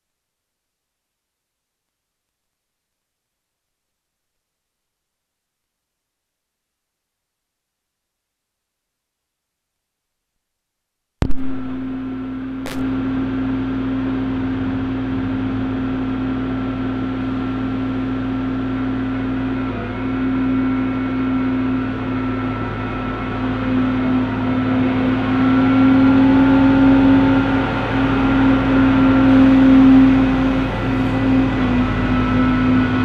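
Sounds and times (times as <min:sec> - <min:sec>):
diesel engines humming: 0:11.4 - 0:33.0.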